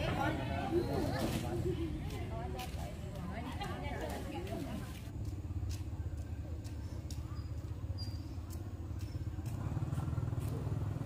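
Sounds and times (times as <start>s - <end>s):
small engine running: 8.0s - 11.0s.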